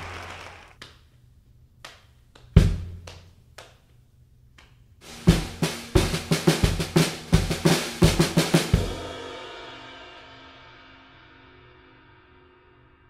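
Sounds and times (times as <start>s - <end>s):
drum fill: 5.0s - 9.4s.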